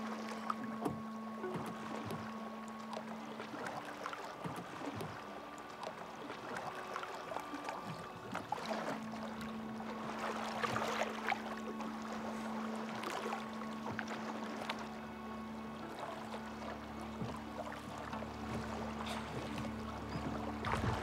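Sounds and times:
low background music tones: 0.0s - 21.0s
oars dipping and splashing: 0.0s - 21.0s
water lapping at hull: 0.0s - 21.0s
wooden boat knocks: 0.6s - 5.3s, 10.5s - 11.6s, 17.0s - 21.0s.

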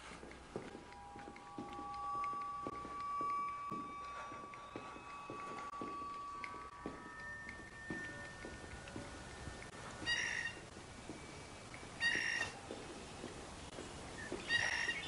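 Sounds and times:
high animal calls: 10.0s - 10.6s.

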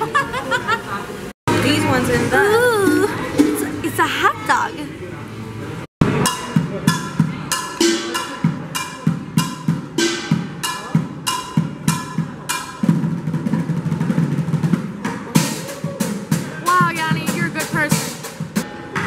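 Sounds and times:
drumsticks on metal pots: 6.0s - 13.6s.

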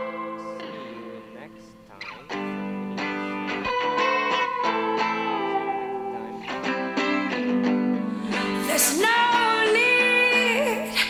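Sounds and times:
plucked guitar music: 0.0s - 11.0s
person singing: 8.0s - 11.0s.

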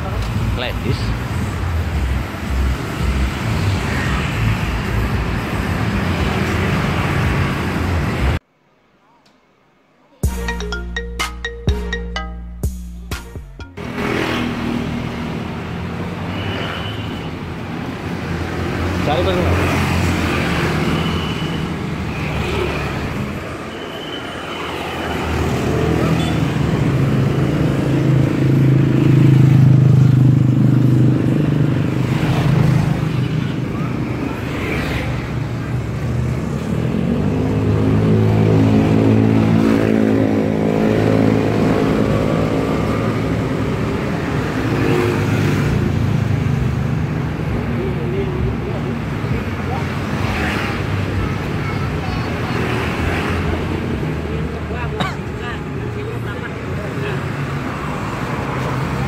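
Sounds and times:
motorbikes and cars passing: 0.0s - 8.4s, 13.7s - 59.0s
street traffic rumble: 0.0s - 8.9s, 9.8s - 59.0s.

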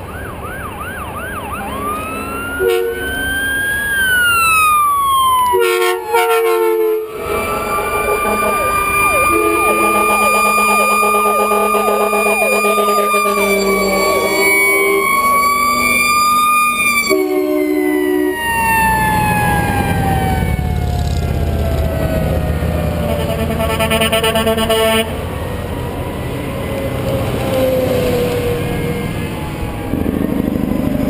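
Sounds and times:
fire engine siren wailing: 0.0s - 31.0s
heavy trucks rumbling past: 0.0s - 31.0s
fire engine horn blasts: 1.5s - 3.4s, 5.4s - 20.7s, 22.8s - 25.4s
loud horn: 2.5s - 3.3s, 5.5s - 16.1s, 16.9s - 18.4s, 23.0s - 25.2s.

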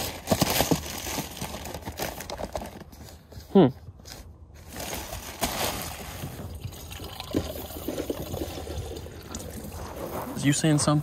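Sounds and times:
water trickling from a spigot: 6.5s - 10.1s.

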